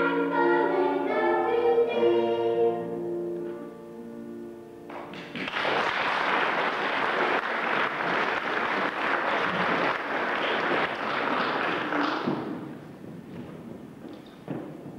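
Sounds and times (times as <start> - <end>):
audience applauding: 4.9 - 12.7.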